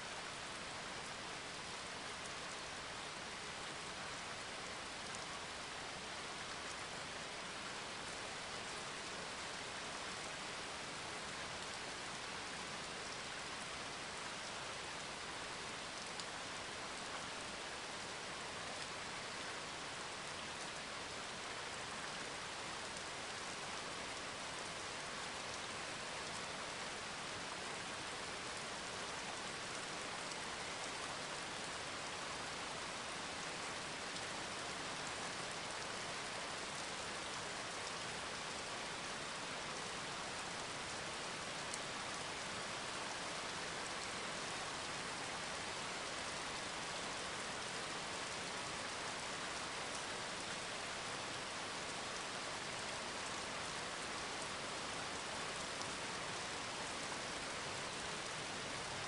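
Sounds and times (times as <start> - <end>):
steady hiss like rainfall: 0.0 - 59.0
faint ticks: 16.0 - 17.2.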